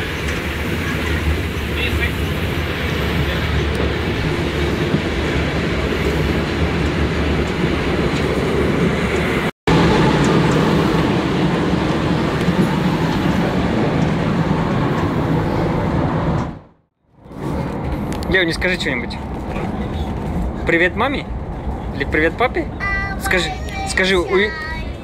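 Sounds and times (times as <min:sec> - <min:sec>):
steam train rushing noise: 0:00.0 - 0:16.6.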